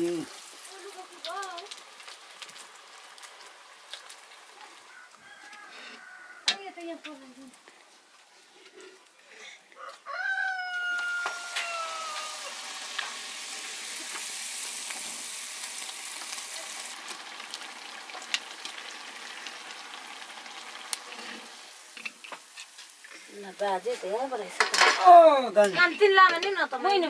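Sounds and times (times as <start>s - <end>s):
oil popping: 0.0s - 4.8s, 11.1s - 23.3s
batter sizzling in hot oil: 0.0s - 5.1s, 10.6s - 25.0s.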